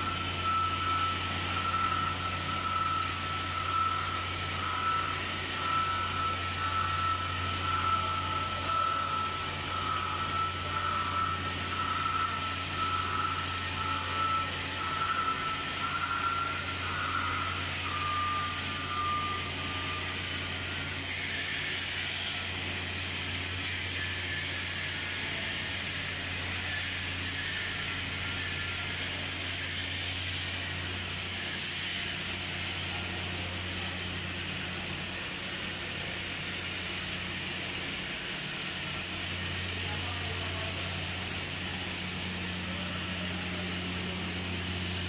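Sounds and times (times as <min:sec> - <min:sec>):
welding arc hissing: 0:14.6 - 0:45.0.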